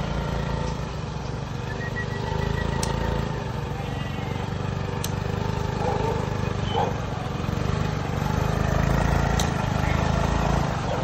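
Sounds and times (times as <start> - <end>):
small motorbike engine ticking over: 0.0 - 11.0
sharp clicks: 2.5 - 3.1, 5.0 - 5.3, 9.3 - 9.6.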